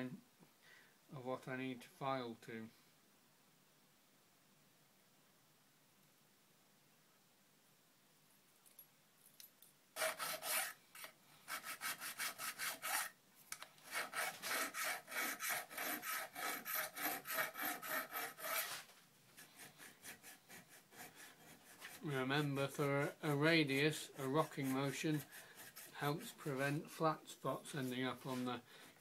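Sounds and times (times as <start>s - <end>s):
hand file rasping on steel: 10.0s - 13.2s, 13.8s - 27.0s.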